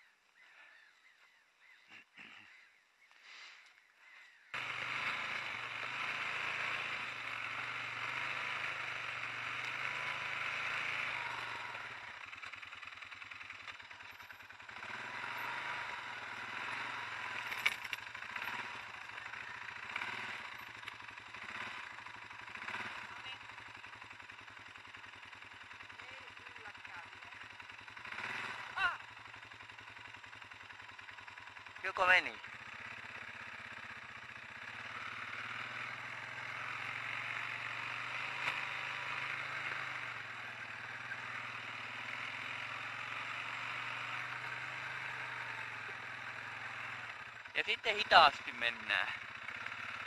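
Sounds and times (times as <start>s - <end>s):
atv engine running: 0.0s - 50.0s.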